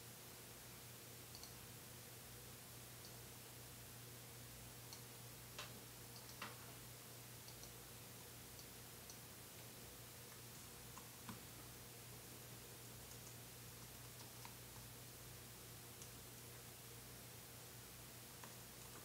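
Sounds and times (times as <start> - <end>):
faint electrical hum: 0.0 - 19.0
mouse and keyboard clicks: 5.6 - 6.6, 13.1 - 14.6.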